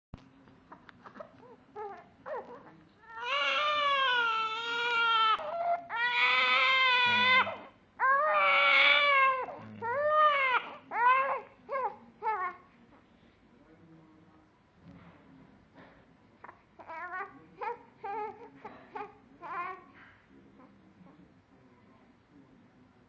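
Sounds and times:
newborn baby crying: 0:01.4 - 0:12.6, 0:16.8 - 0:19.9.

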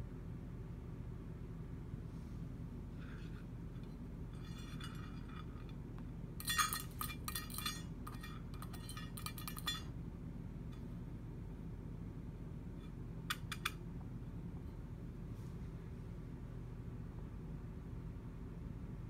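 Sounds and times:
metal food bowl clinking: 0:06.4 - 0:09.9.

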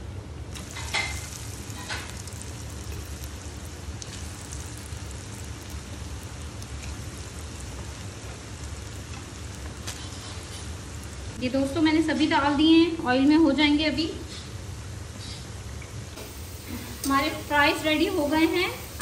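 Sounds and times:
fries sizzling in hot oil: 0:00.5 - 0:11.4, 0:16.1 - 0:19.0.

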